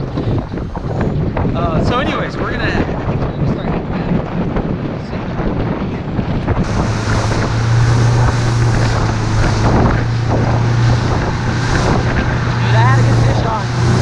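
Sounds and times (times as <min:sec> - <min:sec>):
motorboat engine drone: 0:00.0 - 0:04.7, 0:05.4 - 0:14.0
wind buffeting microphone: 0:00.0 - 0:14.0
spray hissing off hull: 0:06.6 - 0:14.0.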